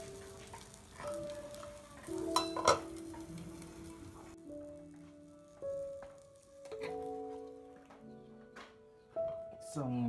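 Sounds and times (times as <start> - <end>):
soft instrumental music: 0.0 - 10.0.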